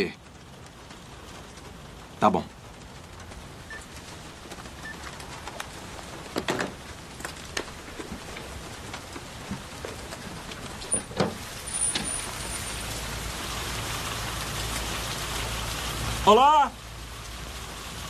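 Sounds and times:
rain hissing: 0.0s - 18.0s
knocks and bumps: 4.5s - 12.4s
window squeaking open: 9.4s - 12.8s.

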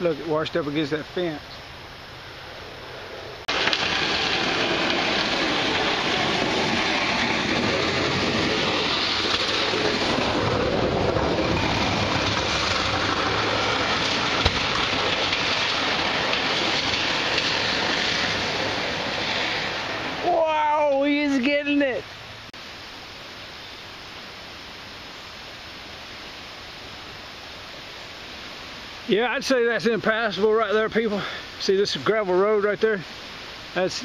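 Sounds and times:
floodwater rushing: 3.5s - 22.5s.

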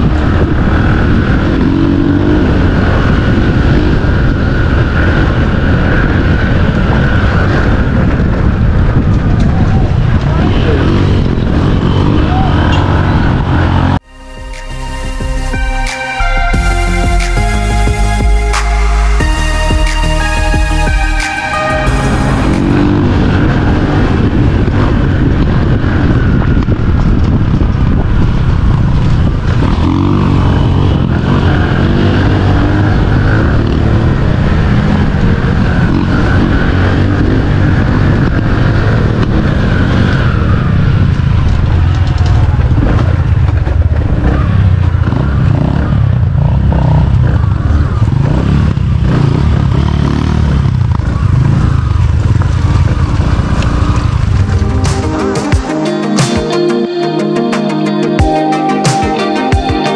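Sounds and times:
dirt bike engine revving: 0.0s - 9.0s, 28.2s - 41.0s, 44.1s - 56.6s.

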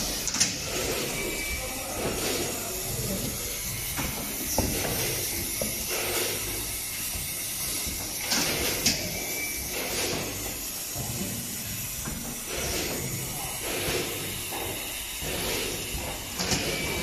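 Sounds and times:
bottling machine running: 0.0s - 17.0s
air hiss bursts: 4.0s - 6.6s, 7.4s - 17.0s.

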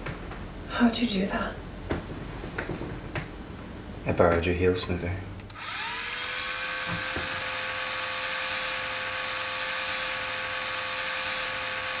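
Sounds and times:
small electric motor whining: 5.5s - 12.0s.

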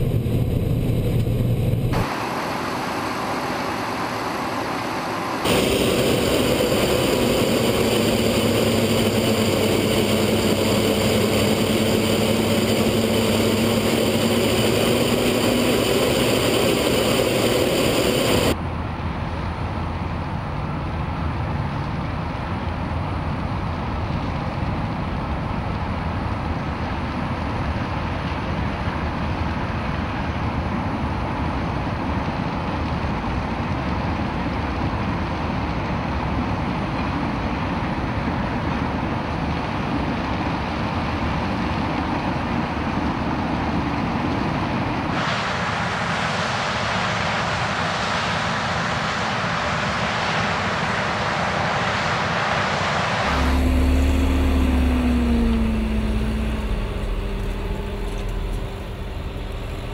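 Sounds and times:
combine harvester running: 0.0s - 59.9s
tractor engine drone: 0.0s - 59.9s
freight train passing: 43.9s - 59.9s.

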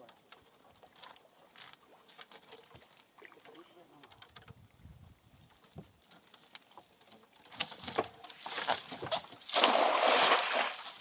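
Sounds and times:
net splashing on water: 7.5s - 11.0s.

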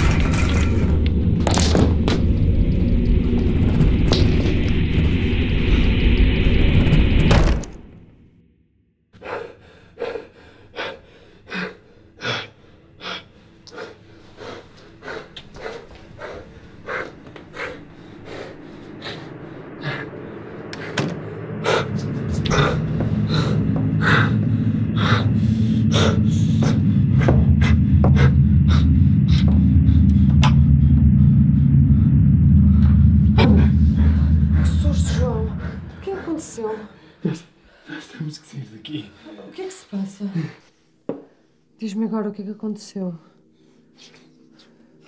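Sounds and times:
low droning rumble: 0.0s - 8.5s, 16.1s - 37.8s.

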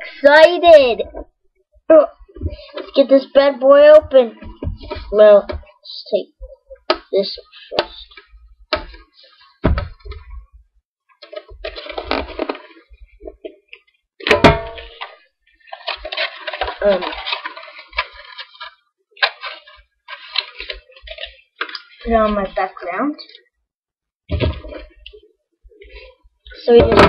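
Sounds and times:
paper rustling and tearing: 11.3s - 12.9s, 15.0s - 22.5s.

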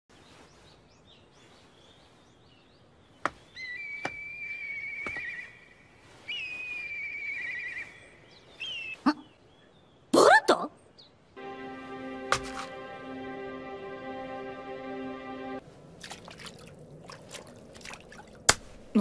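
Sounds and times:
whistled bird call with trill: 6.3s - 9.4s.

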